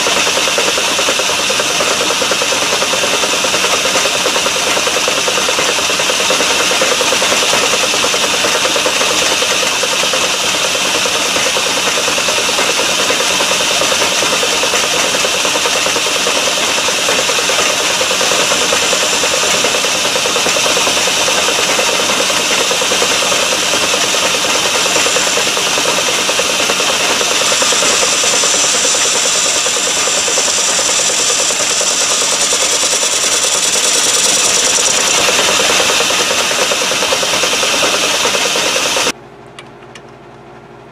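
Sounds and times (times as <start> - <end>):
metal lathe running: 0.0 - 39.2
high-pitched metal cutting: 16.3 - 39.1.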